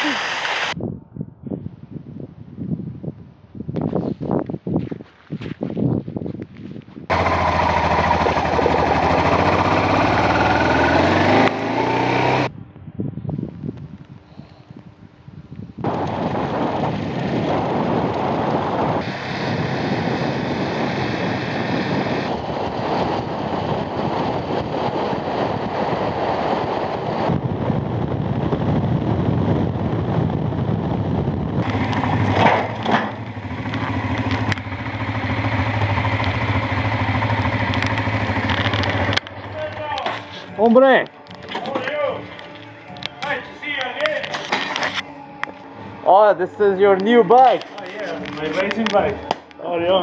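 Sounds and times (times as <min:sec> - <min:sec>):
wind rush on microphone: 0:00.0 - 0:11.4, 0:12.3 - 0:39.3
motorcycle engine: 0:07.1 - 0:12.6, 0:28.6 - 0:40.6.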